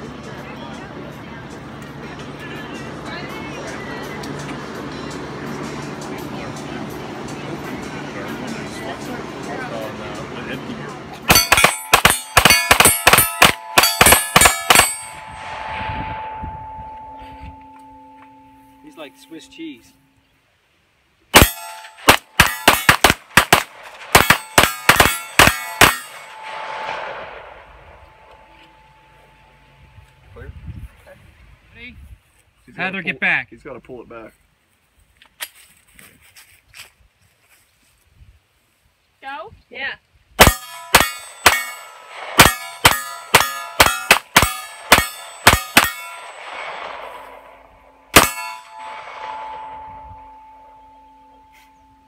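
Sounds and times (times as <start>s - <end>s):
steel target ringing: 11.2s - 20.2s, 21.3s - 30.0s, 40.4s - 52.0s
pistol shots: 11.3s - 15.1s, 21.3s - 27.5s, 40.4s - 49.8s
soft rushing noise: 15.0s - 20.1s.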